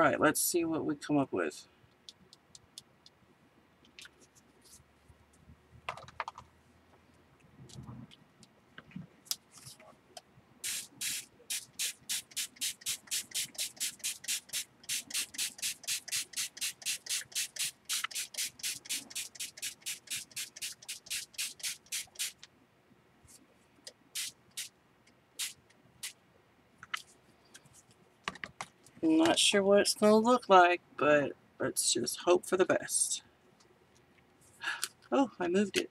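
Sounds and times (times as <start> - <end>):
spray bottle squirting water: 10.6 - 22.4, 24.1 - 24.7, 25.4 - 26.2.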